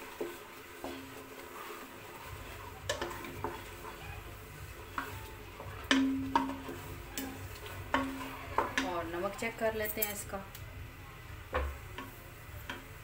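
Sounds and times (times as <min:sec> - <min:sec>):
ladle stirring thick food: 0:00.0 - 0:10.3, 0:11.4 - 0:13.0
ladle knocking against pot: 0:04.9 - 0:09.0, 0:11.5 - 0:12.9.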